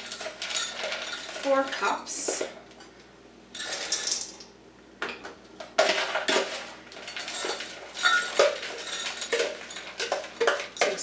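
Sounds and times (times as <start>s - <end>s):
frozen berries clattering into a cup: 0.0s - 2.5s, 3.6s - 4.4s, 5.7s - 11.0s.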